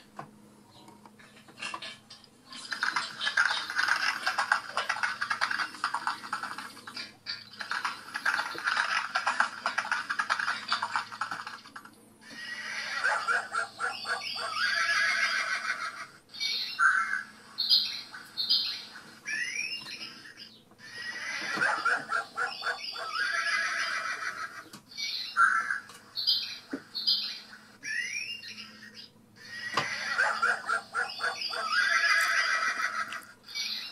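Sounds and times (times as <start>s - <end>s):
hens squawking: 12.2s - 16.2s, 20.8s - 24.7s, 29.4s - 33.9s
horse whinnying: 14.6s - 15.9s, 23.0s - 24.6s, 31.5s - 33.1s.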